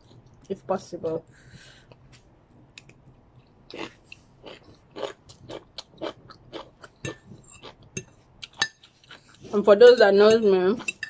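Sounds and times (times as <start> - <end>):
person chewing noodles: 2.8 - 9.5.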